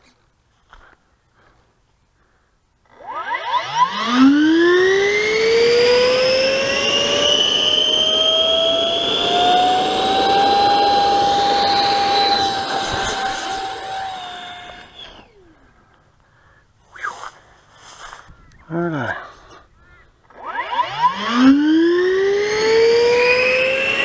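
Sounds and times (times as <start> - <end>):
electric fan jet whining: 2.9 - 15.6, 20.2 - 24.0.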